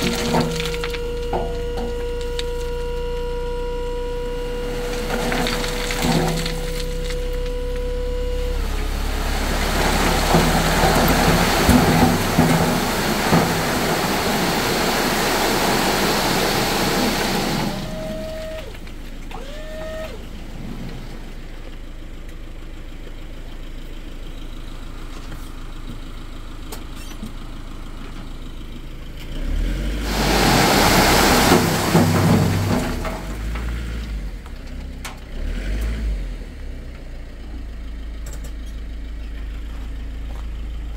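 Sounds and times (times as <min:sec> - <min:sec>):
gravel sliding out: 0:00.0 - 0:03.0, 0:04.5 - 0:07.8, 0:08.5 - 0:21.9, 0:29.5 - 0:36.0
truck engine revving: 0:00.0 - 0:21.4, 0:29.3 - 0:36.8
short rising squeaks: 0:15.8 - 0:20.9.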